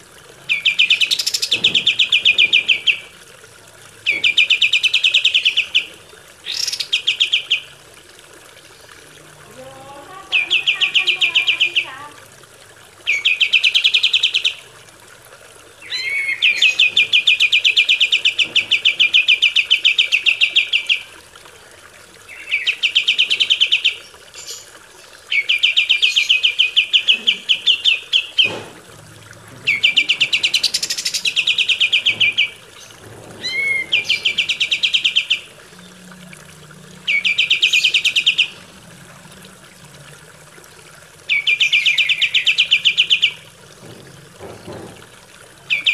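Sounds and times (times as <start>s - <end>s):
songbird trilling: 0.5s - 3.0s, 10.3s - 11.9s, 15.8s - 21.1s, 29.6s - 35.6s, 37.1s - 38.6s, 41.3s - 43.4s.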